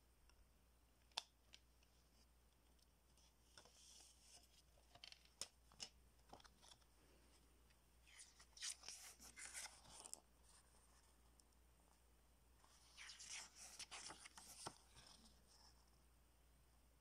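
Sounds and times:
paper booklet rustling: 0:08.0 - 0:11.2, 0:12.6 - 0:16.0.

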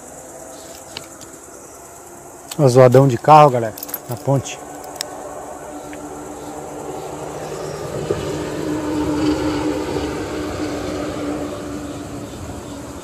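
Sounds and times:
truck rumbling over bridge: 0:04.6 - 0:13.0.

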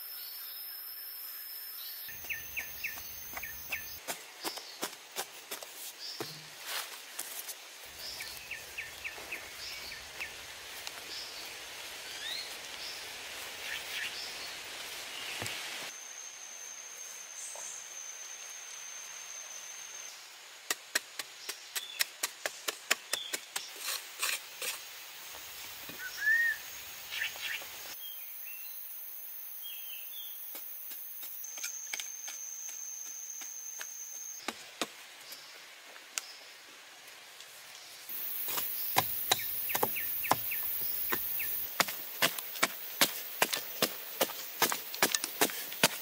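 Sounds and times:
blade striking clay soil: 0:38.2 - 0:46.0.

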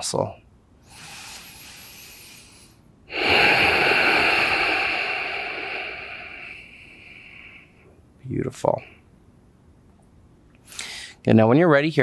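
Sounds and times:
person breathing out forcefully: 0:00.8 - 0:07.9.

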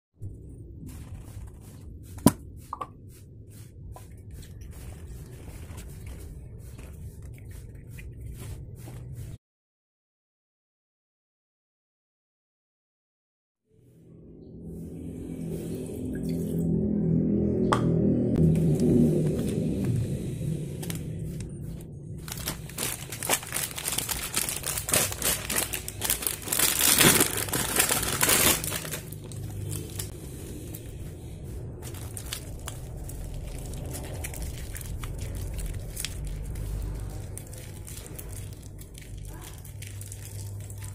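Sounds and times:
low hum: 0:00.2 - 0:09.4, 0:13.7 - 0:40.9
plastic sachets crinkling: 0:22.2 - 0:30.1, 0:31.8 - 0:40.9.

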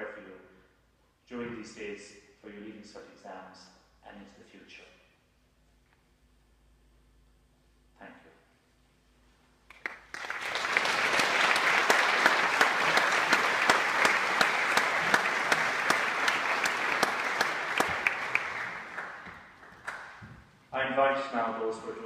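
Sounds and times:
crowd applauding: 0:09.7 - 0:20.4.

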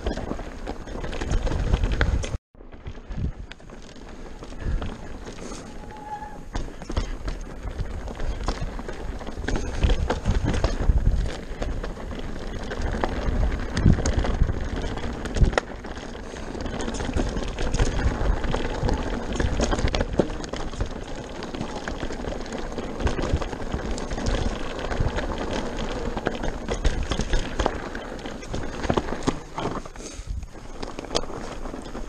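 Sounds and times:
bike rattling and knocking: 0:00.0 - 0:32.0
tyres crunching over gravel: 0:00.0 - 0:32.0.

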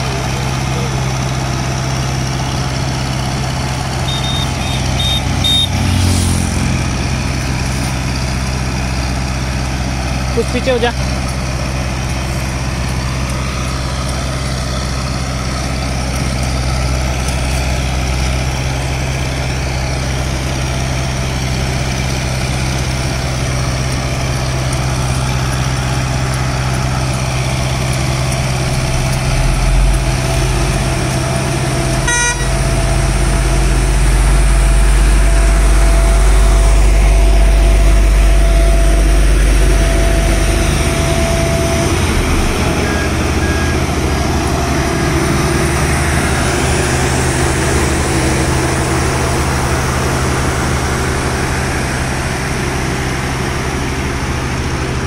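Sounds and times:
heavy diesel machinery rumbling: 0:00.0 - 0:55.0
steady machine whine: 0:00.0 - 0:55.0
horn toot: 0:04.1 - 0:06.2, 0:32.0 - 0:32.8.

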